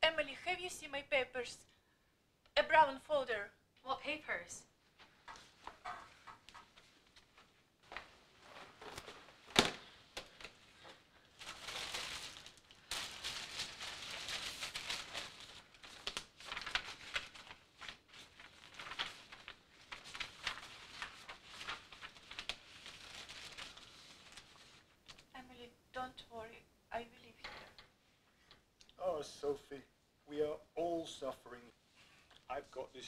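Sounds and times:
rustling and crinkling while rummaging: 0:05.0 - 0:25.0.

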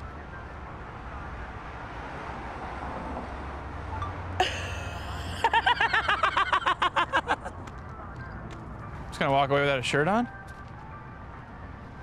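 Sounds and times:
outdoor street hum: 0:00.0 - 0:12.0
woman giggling: 0:04.4 - 0:07.5.

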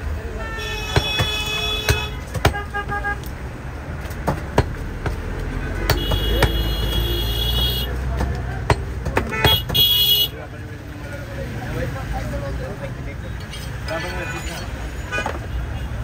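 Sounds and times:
street traffic rumble: 0:00.0 - 0:16.0
vehicle horns honking: 0:00.3 - 0:03.4, 0:05.6 - 0:08.0, 0:09.2 - 0:10.5, 0:14.0 - 0:16.0
sharp knocks: 0:00.9 - 0:03.3, 0:04.0 - 0:09.9.

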